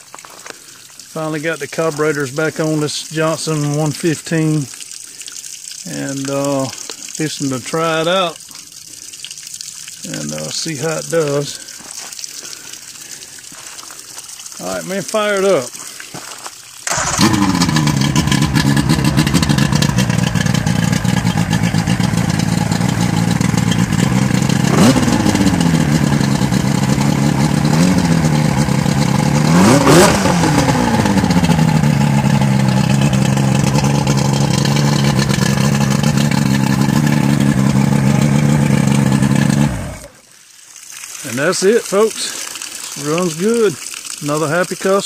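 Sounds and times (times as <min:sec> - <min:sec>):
outboard motor revving: 0:16.8 - 0:40.2
outboard motor starting and idling: 0:16.8 - 0:40.2.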